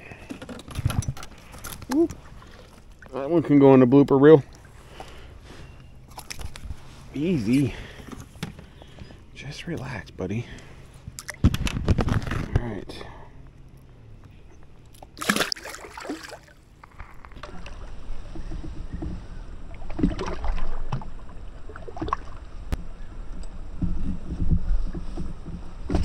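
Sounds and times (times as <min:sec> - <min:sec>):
wind and water rumble: 0:00.0 - 0:26.0
water splash: 0:15.0 - 0:16.6, 0:19.8 - 0:22.4.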